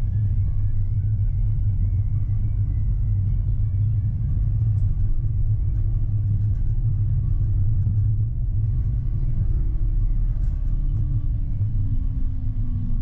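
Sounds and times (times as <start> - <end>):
faint whine: 0.0 - 13.0
tram rumbling along track: 0.0 - 13.0.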